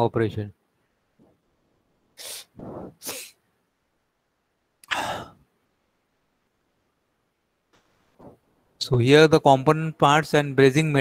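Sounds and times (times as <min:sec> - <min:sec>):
man breathing: 0:04.8 - 0:05.4.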